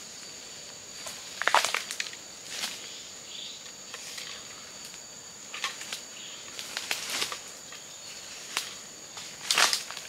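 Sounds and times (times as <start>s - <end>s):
dry leaves and twigs crackling: 0.2s - 10.0s.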